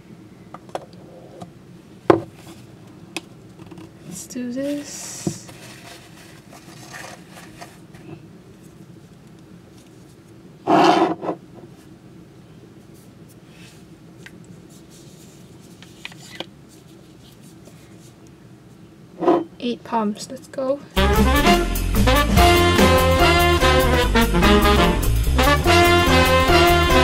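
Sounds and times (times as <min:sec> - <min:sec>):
faint steady hum: 0:00.0 - 0:22.0
glass scraping on tabletop: 0:10.7 - 0:11.4.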